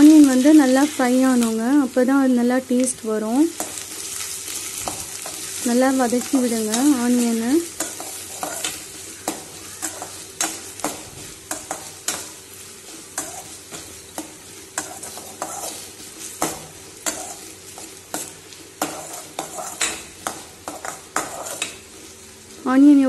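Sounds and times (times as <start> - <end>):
onions sizzling in oil: 0.0 - 23.0
ladle scraping and clinking on pan: 14.2 - 21.8.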